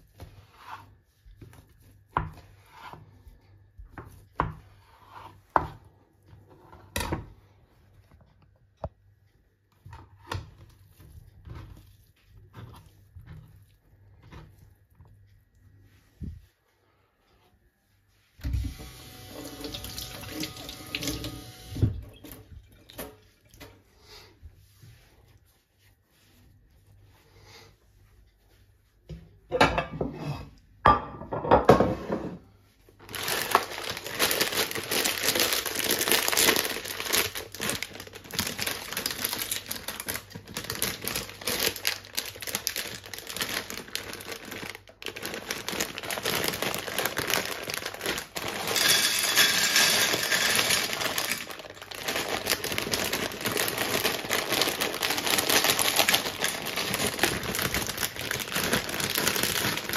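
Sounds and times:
plastic bag crinkling: 33.0s - 59.9s.

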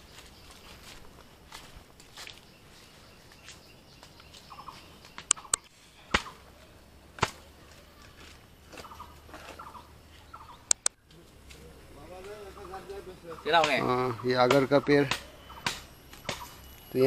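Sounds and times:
bird trilling: 3.7s - 6.5s, 8.7s - 11.0s, 12.4s - 17.0s
sharp clicks: 5.2s - 6.4s, 10.6s - 11.0s.

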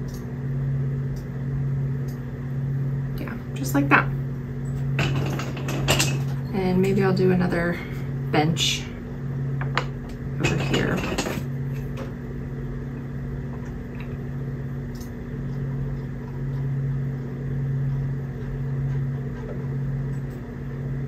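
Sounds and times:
low mechanical hum: 0.0s - 21.0s.

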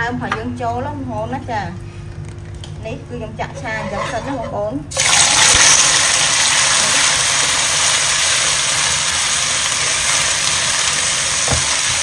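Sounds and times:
spatula scraping pan: 3.6s - 4.6s
meat sizzling in hot oil: 4.9s - 12.0s.

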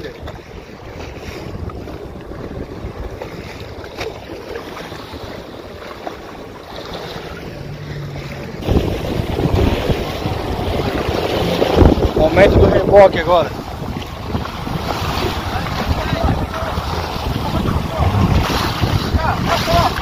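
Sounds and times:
water rushing and splashing: 0.0s - 20.0s
wind buffeting microphone: 0.0s - 20.0s.

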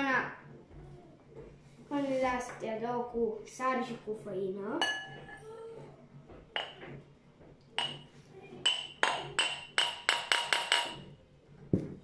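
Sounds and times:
mugs clinking against glass bowl: 4.8s - 5.5s, 6.5s - 7.0s, 7.7s - 11.2s.

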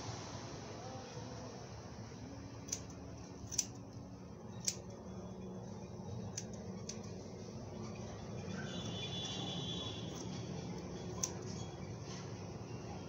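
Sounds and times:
scissors snipping hair: 2.6s - 4.0s, 4.6s - 5.0s, 10.1s - 11.6s.

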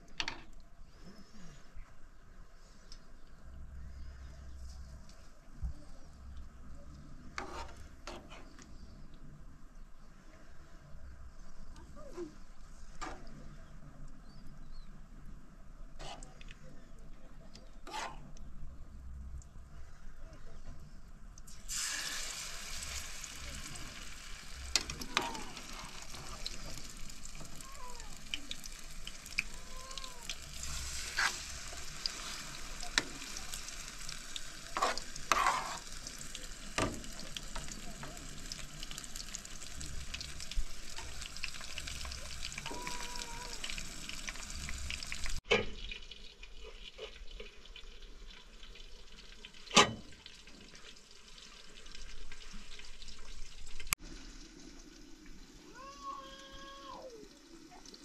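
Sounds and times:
fish sizzling in oil: 21.5s - 56.2s.

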